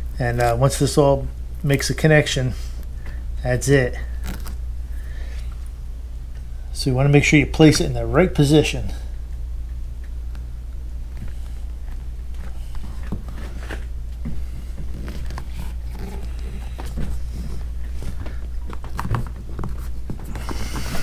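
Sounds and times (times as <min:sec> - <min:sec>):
steady low hum: 0:00.0 - 0:21.0
hands scuffing and rubbing vinyl: 0:04.0 - 0:04.6, 0:11.1 - 0:21.0.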